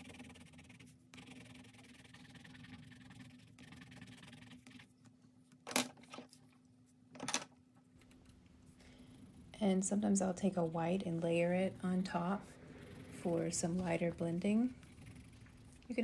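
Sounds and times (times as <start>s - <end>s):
pencil scratching on paper: 0.0s - 4.9s
low hum: 8.2s - 16.0s.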